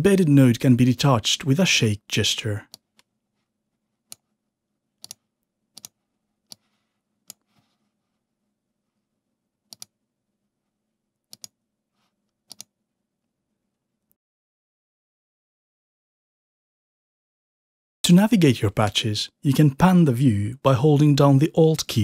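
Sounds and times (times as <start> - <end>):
computer mouse clicks: 5.0 - 7.5, 9.7 - 9.9, 11.3 - 11.6, 12.4 - 12.7.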